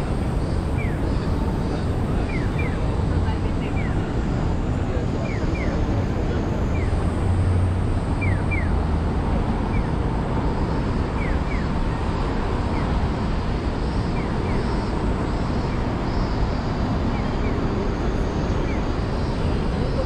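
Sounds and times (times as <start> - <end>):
city traffic: 0.0 - 20.0
electronic bird-call crossing signal: 2.2 - 2.8, 6.6 - 7.0, 8.1 - 8.8, 9.7 - 10.0, 11.1 - 12.1, 14.1 - 15.0.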